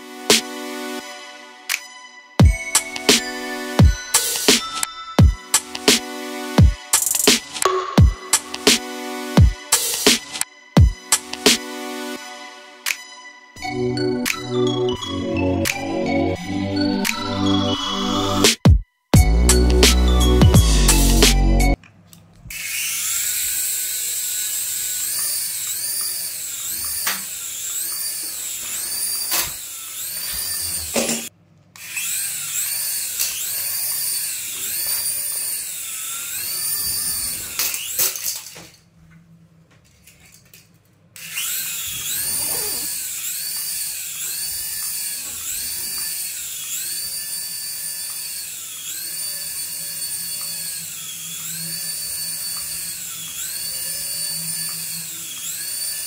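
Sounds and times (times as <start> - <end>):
toy helicopter motor whining: 22.5 - 38.6, 41.2 - 56.0.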